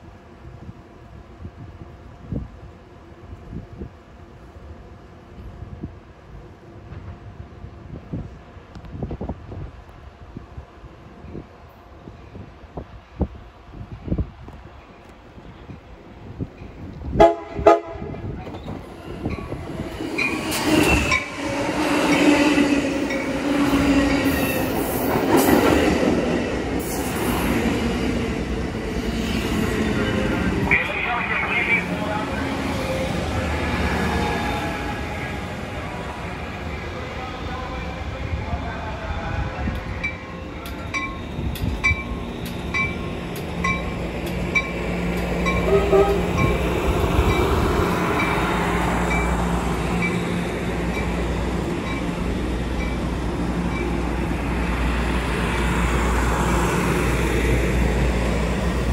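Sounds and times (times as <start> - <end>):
train wheels rumbling on rails: 0.0 - 58.9
train horn blasts: 17.1 - 18.3, 45.6 - 46.5.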